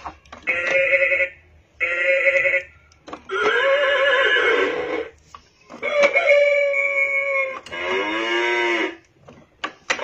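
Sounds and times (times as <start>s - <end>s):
toy speaker playing sounds: 0.0s - 10.0s
recorded horse whinny: 3.3s - 5.1s.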